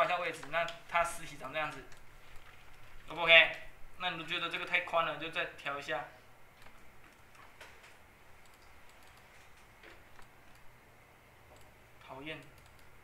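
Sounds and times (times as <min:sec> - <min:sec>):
mouse and keyboard clicking: 0:06.6 - 0:10.7, 0:12.3 - 0:12.9.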